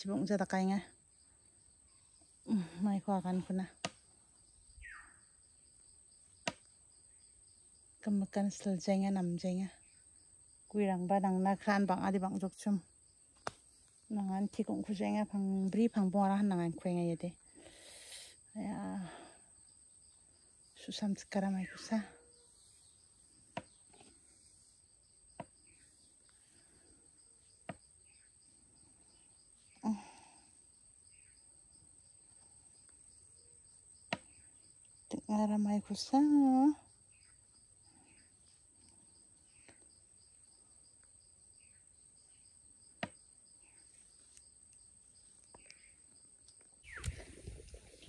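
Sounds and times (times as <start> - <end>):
faint insect chirring: 0.0 - 48.0
high-pitched insect whine: 36.6 - 48.0.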